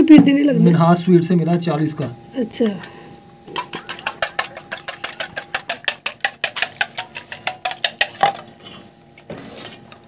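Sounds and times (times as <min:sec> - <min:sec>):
whisk clicking against metal bowl: 0:03.5 - 0:08.4.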